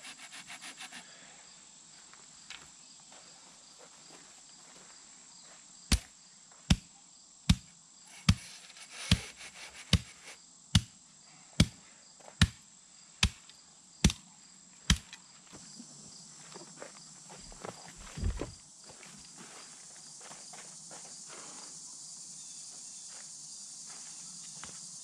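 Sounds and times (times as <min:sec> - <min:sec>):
high insect drone: 0:00.0 - 0:25.0
hand tamper thudding on gravel: 0:05.9 - 0:06.1, 0:07.5 - 0:10.2, 0:14.9 - 0:15.2, 0:17.5 - 0:18.6.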